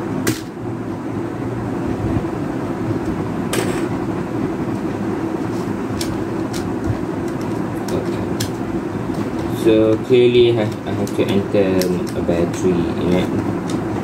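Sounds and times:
low rumbling hum: 0:00.0 - 0:14.0
plastic keyboard clicks: 0:10.6 - 0:13.8.

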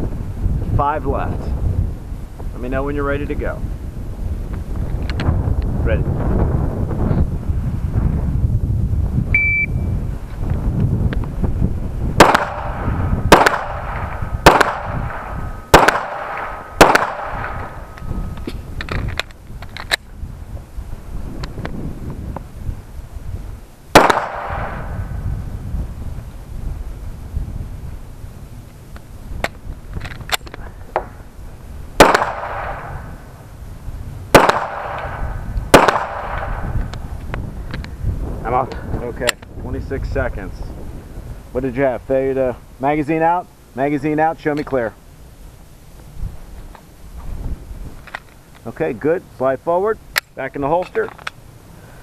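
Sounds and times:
wind rumble on microphone: 0:00.0 - 0:52.0
pistol shots: 0:12.2 - 0:17.9, 0:23.9 - 0:25.0, 0:32.0 - 0:33.0, 0:34.3 - 0:36.6.

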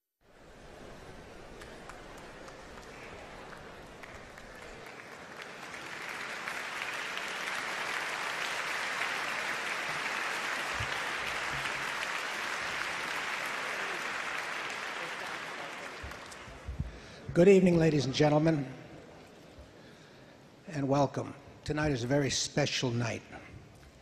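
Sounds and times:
audience applauding: 0:00.6 - 0:17.2.

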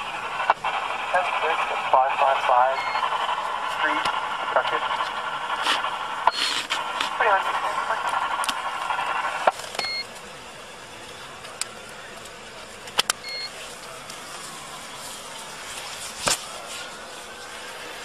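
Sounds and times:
steady background noise: 0:00.0 - 0:18.0
short electronic beeps: 0:02.8 - 0:03.1, 0:09.8 - 0:10.1, 0:13.2 - 0:13.5.

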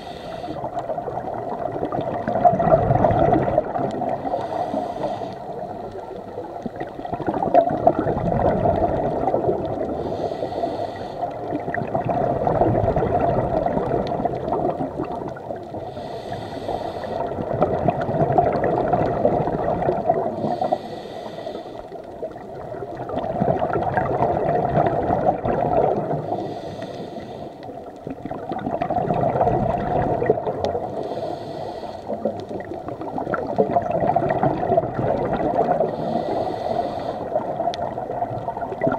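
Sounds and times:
regulator hiss on inhale: 0:00.0 - 0:00.9, 0:04.1 - 0:07.0, 0:09.8 - 0:11.6, 0:15.6 - 0:17.4, 0:20.1 - 0:22.3, 0:26.0 - 0:27.8, 0:30.8 - 0:32.7, 0:35.8 - 0:37.8
gurgling exhaust bubbles: 0:00.6 - 0:04.4, 0:06.6 - 0:10.0, 0:11.4 - 0:15.8, 0:17.2 - 0:20.5, 0:22.3 - 0:26.4, 0:28.0 - 0:31.1, 0:32.2 - 0:36.2, 0:37.3 - 0:38.9.

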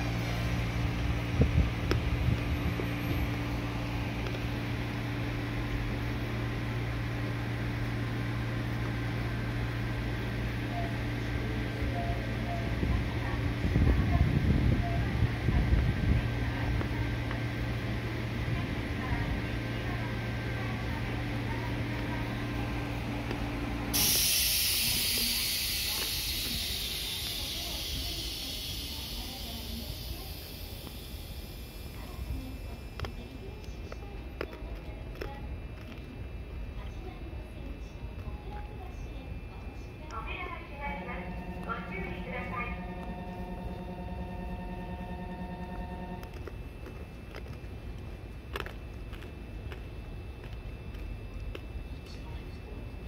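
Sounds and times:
electric train equipment humming: 0:00.0 - 0:53.0
air brakes hissing: 0:23.9 - 0:32.3.

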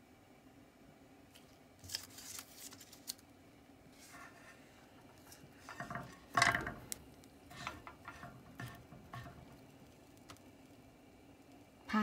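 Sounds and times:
chopsticks scraping frying pan: 0:04.0 - 0:09.9.

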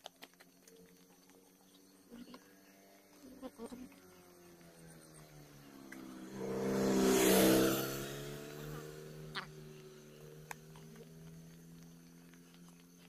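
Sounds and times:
van driving past: 0:04.3 - 0:13.0.

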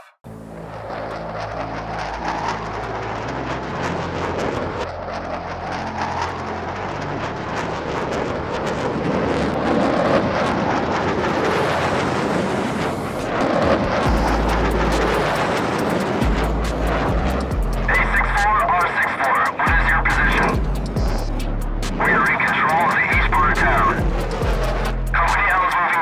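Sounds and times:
aircraft takeoff roar: 0:00.2 - 0:26.0
low background music: 0:12.8 - 0:18.9, 0:19.7 - 0:25.4.

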